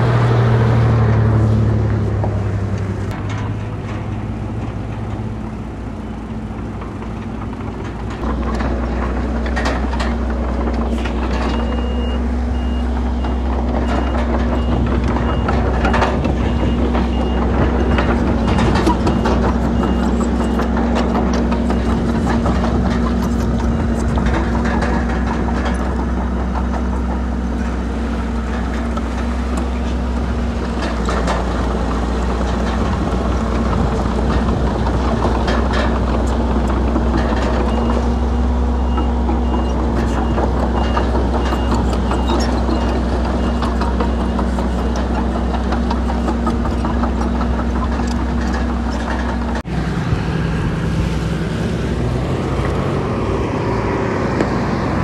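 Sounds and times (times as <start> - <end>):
deeper engine note: 0.0 - 6.9, 49.6 - 55.0
diesel engines running: 0.0 - 55.0
metal clanks and knocks: 2.2 - 49.7.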